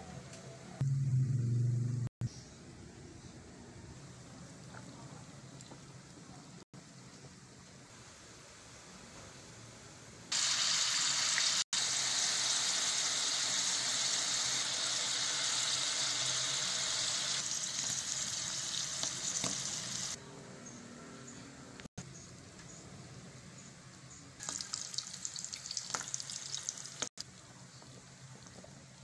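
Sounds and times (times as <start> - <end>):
mushrooms sizzling in hot oil: 10.3 - 20.2, 24.4 - 27.2.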